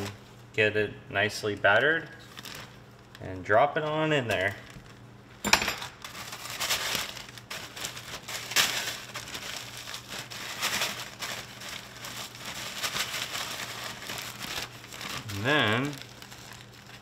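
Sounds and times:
crumbs rustling inside bag: 0:01.4 - 0:03.5, 0:06.0 - 0:17.0
plastic bag crinkling: 0:01.4 - 0:05.1, 0:05.8 - 0:17.0.

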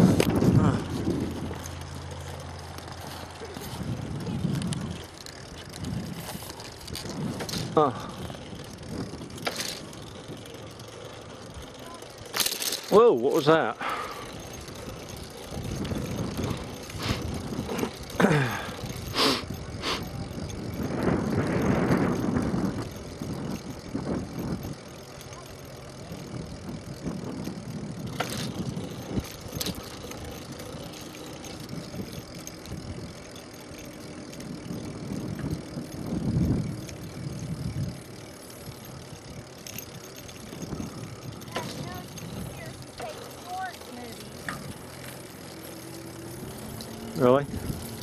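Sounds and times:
wind on microphone: 0:00.0 - 0:01.6, 0:18.6 - 0:24.8, 0:34.4 - 0:38.1
bike clicks and rattles: 0:00.0 - 0:48.0.

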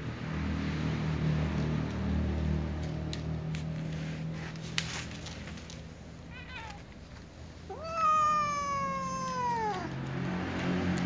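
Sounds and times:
cat meowing: 0:06.3 - 0:07.1, 0:07.7 - 0:10.0.

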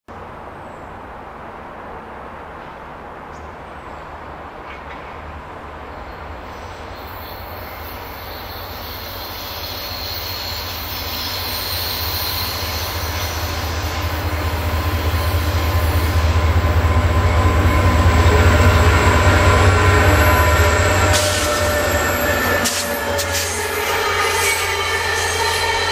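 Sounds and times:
train wheels on rails: 0:06.3 - 0:25.9
diesel locomotive rumble: 0:07.8 - 0:25.9.

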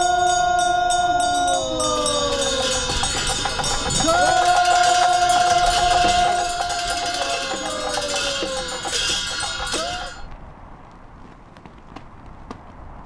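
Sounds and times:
cymbals ringing: 0:00.0 - 0:10.3
hand bells ringing: 0:00.0 - 0:10.3
long held tone: 0:00.0 - 0:10.3.

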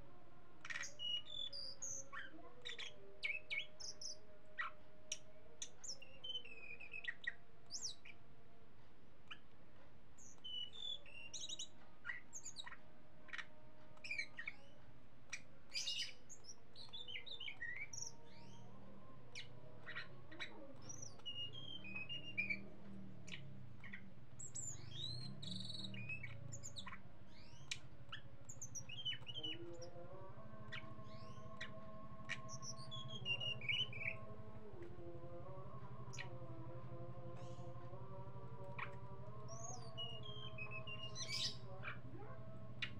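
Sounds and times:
faint steady tones: 0:00.0 - 0:42.9
bird chirping and trilling: 0:00.6 - 0:08.2, 0:10.2 - 0:14.7, 0:15.3 - 0:35.1, 0:37.3 - 0:42.9
low hum: 0:16.4 - 0:42.9.

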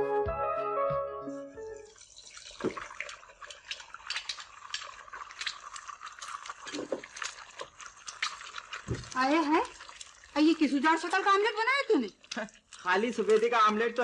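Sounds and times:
background music: 0:00.0 - 0:02.0.

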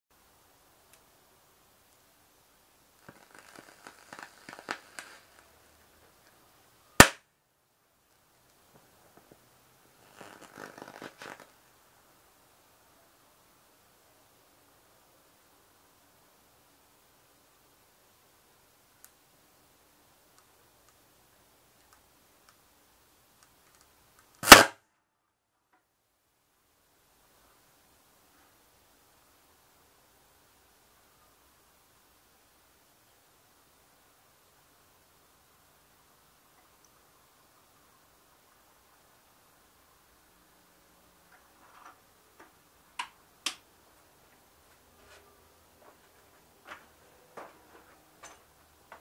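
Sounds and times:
electrical crackles and sizzling: 0:01.8 - 0:07.2, 0:08.1 - 0:11.8
faint overheating ticks: 0:20.3 - 0:21.1.

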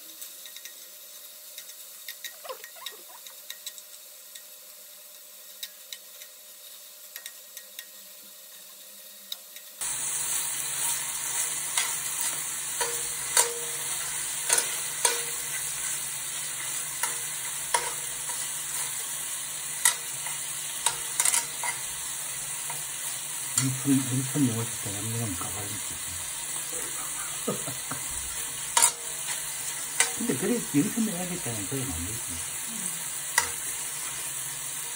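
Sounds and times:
beef sizzling in a pan: 0:00.0 - 0:34.9
metal tongs clicking on pan: 0:07.1 - 0:08.0, 0:11.7 - 0:19.1, 0:19.7 - 0:21.9, 0:28.6 - 0:30.2, 0:33.2 - 0:34.3.

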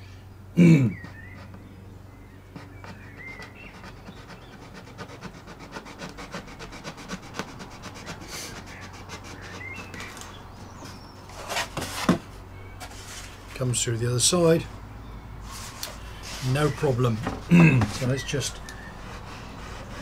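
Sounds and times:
knife sawing through wood veneer: 0:02.6 - 0:10.1, 0:17.9 - 0:20.0.

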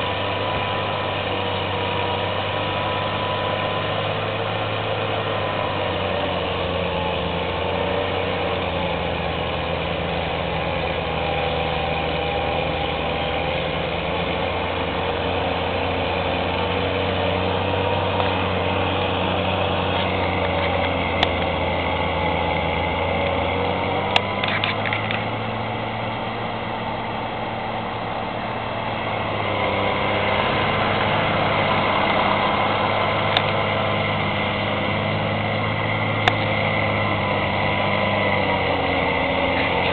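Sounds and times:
snowblower engine droning: 0:00.0 - 0:39.9
car passing: 0:15.5 - 0:39.9.

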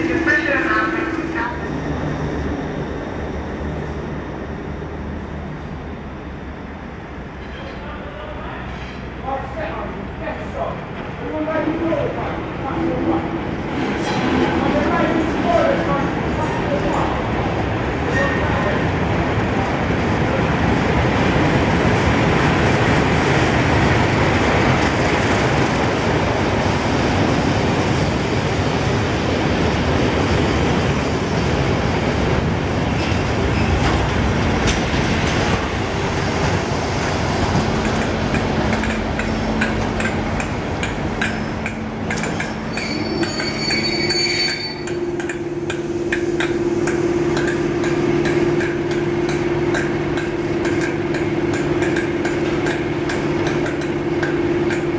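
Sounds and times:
train rumbling past: 0:00.0 - 0:54.9
wheels clicking over rail joints: 0:37.5 - 0:45.4
wheels squealing: 0:42.5 - 0:45.0.

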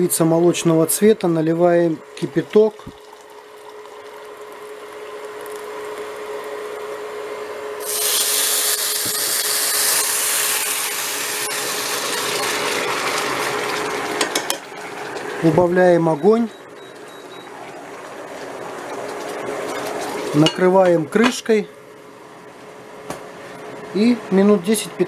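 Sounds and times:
water boiling: 0:01.9 - 0:21.1
rice sizzling in pan: 0:07.8 - 0:15.4, 0:17.5 - 0:20.5
water hissing and spitting in hot pan: 0:07.8 - 0:15.4.

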